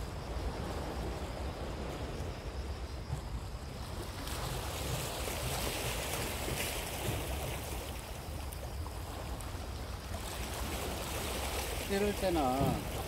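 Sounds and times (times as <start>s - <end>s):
wind rumbling on microphone: 0.0s - 13.0s
waves washing over rocks: 4.2s - 13.0s.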